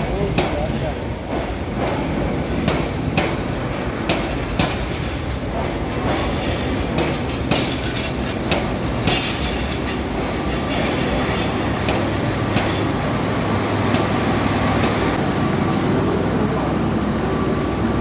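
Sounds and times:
wheels clacking over rail joints: 0.0 - 12.9
train rumbling on rails: 0.0 - 18.0.

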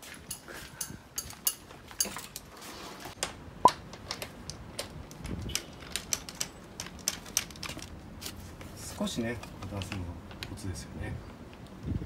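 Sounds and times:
metal hand tools clicking and tapping: 0.2 - 2.4.

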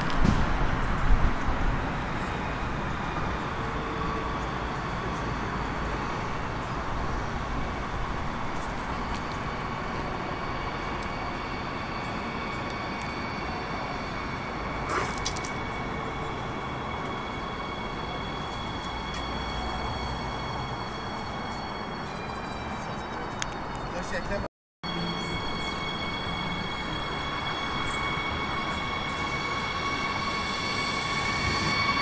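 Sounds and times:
electric train rumble and hiss: 0.0 - 23.9, 24.9 - 32.0
metallic clinking with high ring: 14.9 - 15.7.

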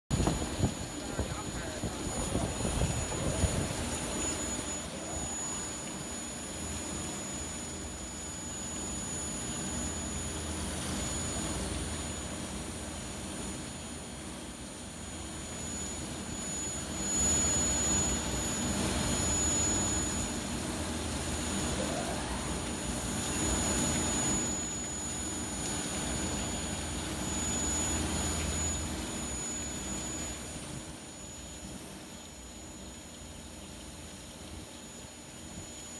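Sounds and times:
continuous machine noise: 0.1 - 35.9
high-pitched machine whine: 0.1 - 35.9.

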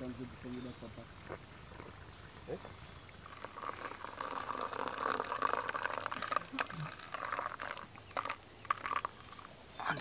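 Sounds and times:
water pouring into a cup: 3.2 - 10.0.

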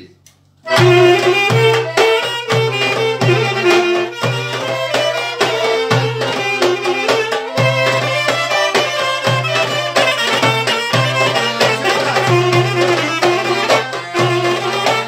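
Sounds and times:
folk band music: 0.7 - 15.0.

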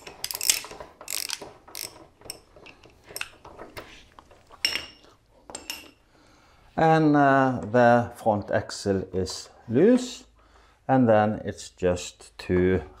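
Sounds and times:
socket ratchet clicking: 0.0 - 2.4.

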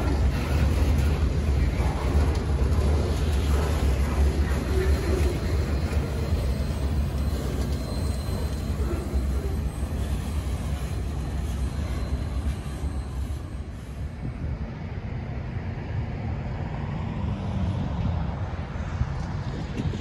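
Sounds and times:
freight train wheels rumbling: 0.0 - 20.0.

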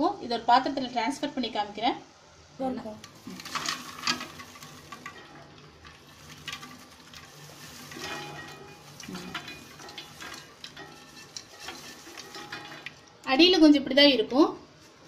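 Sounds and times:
popcorn tumbling into bowl: 3.0 - 13.3.

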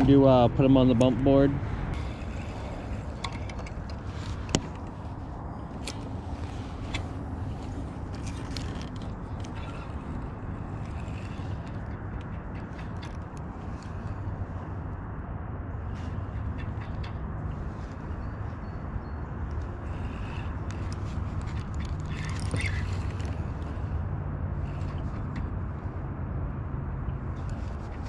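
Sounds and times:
fishing reel and tackle clicks: 1.9 - 5.0, 5.7 - 14.2, 19.5 - 23.9.

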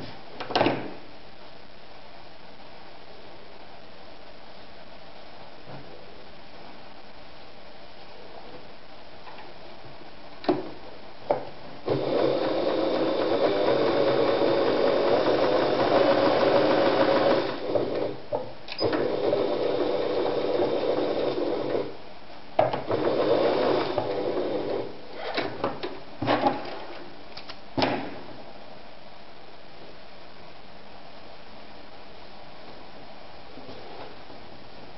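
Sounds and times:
sewing machine stitching: 11.9 - 18.2, 18.8 - 21.9, 22.8 - 24.9.

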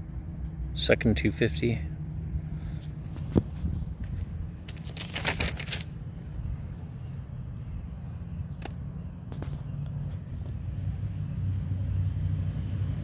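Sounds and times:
paper rustling: 3.1 - 6.0.

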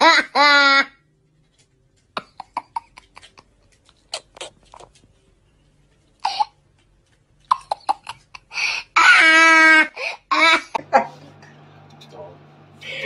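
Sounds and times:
child giggling: 8.0 - 11.3.

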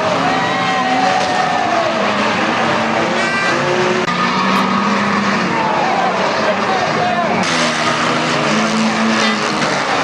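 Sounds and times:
race car engines: 0.0 - 10.0.

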